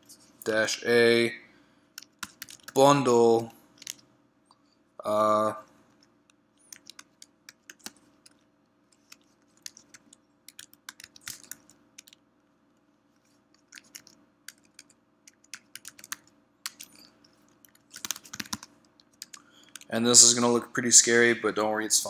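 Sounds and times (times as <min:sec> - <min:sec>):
computer keyboard typing: 0:02.0 - 0:02.8, 0:03.8 - 0:04.0, 0:06.6 - 0:12.2, 0:13.5 - 0:19.9.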